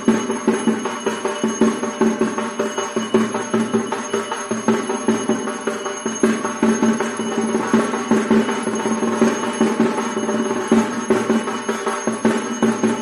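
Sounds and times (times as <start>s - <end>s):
bells ringing rapidly: 0.0s - 13.0s
drumming: 0.0s - 13.0s.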